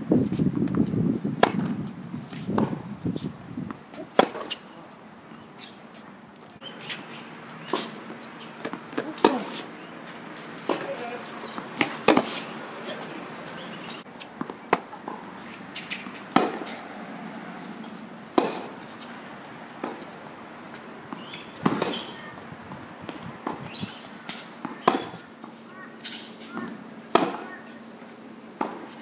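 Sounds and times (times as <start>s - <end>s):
tennis ball struck and bouncing: 1.4s - 1.8s, 2.6s - 2.8s, 3.9s - 4.6s, 7.6s - 9.6s, 10.6s - 12.5s, 13.5s - 16.8s, 18.3s - 19.0s, 19.8s - 20.2s, 21.1s - 22.1s, 23.0s - 25.2s, 26.6s - 27.5s.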